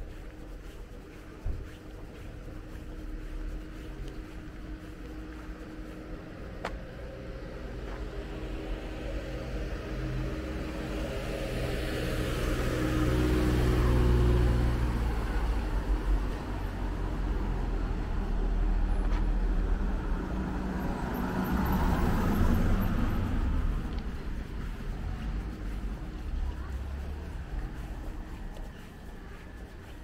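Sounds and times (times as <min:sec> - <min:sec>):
car passing by: 0:06.9 - 0:30.0.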